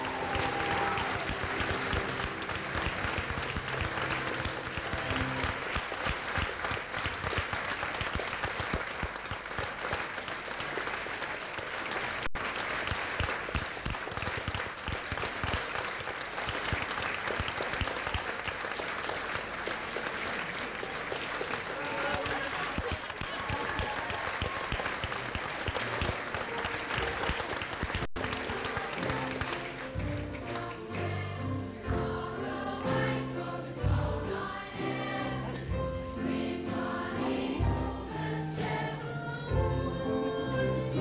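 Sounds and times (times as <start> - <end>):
audience applauding: 0.0 - 31.1.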